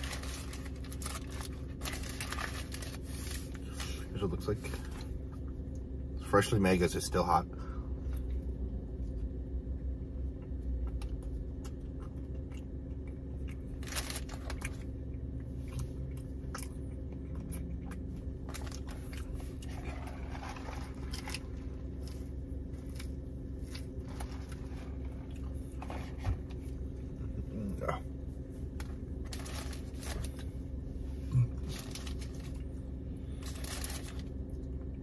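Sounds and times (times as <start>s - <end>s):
man chewing food: 8.0s - 35.0s.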